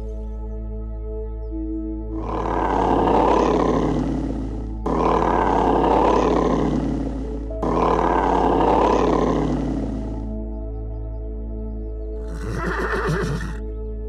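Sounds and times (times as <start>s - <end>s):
background music: 0.0s - 14.0s
rough animal roar: 2.1s - 10.3s, 12.2s - 13.6s.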